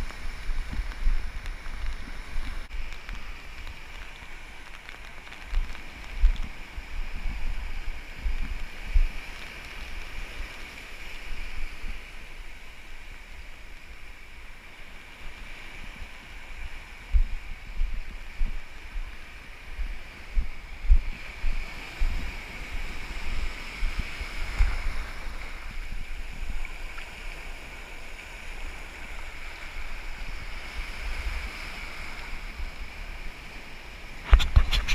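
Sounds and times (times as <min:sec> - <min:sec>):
wind buffeting microphone: 0:00.0 - 0:12.0, 0:15.8 - 0:27.6, 0:34.1 - 0:34.9
surf washing on sand: 0:00.0 - 0:34.9.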